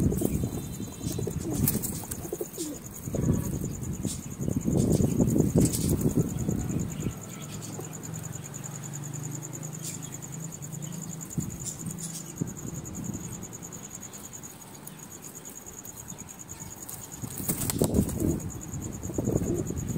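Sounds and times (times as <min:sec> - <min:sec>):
pigeons cooing: 0:00.0 - 0:07.9, 0:17.5 - 0:19.9
pulsing insect trill: 0:00.0 - 0:19.9.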